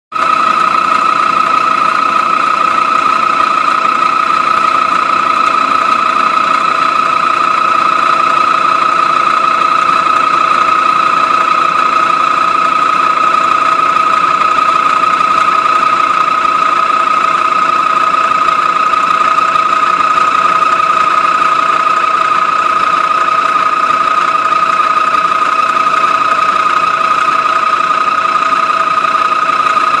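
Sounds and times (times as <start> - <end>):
milling machine whine: 0.2 - 30.0.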